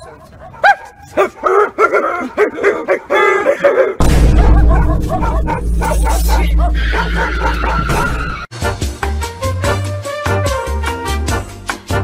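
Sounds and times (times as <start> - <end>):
dog barking and yelping: 0.0 - 8.1
loud bass-heavy music: 4.0 - 10.6.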